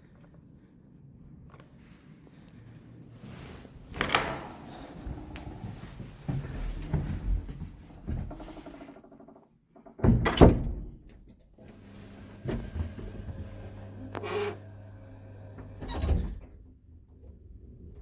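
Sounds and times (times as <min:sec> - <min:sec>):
lift doors closing with motor hum: 0:03.9 - 0:09.0, 0:11.6 - 0:16.5
heavy breathing: 0:04.5 - 0:07.5.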